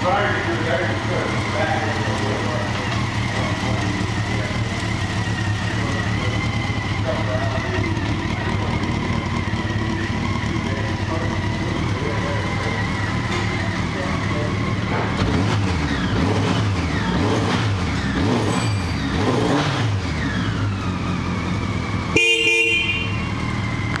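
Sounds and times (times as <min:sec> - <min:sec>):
motorcycle engine revving: 0:00.0 - 0:24.0
motorcycle horn: 0:22.0 - 0:23.8.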